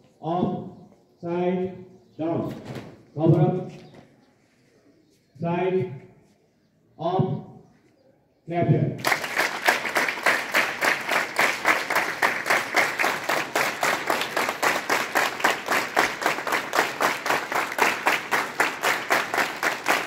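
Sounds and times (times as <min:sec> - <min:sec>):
children clapping in unison: 0:09.0 - 0:20.0.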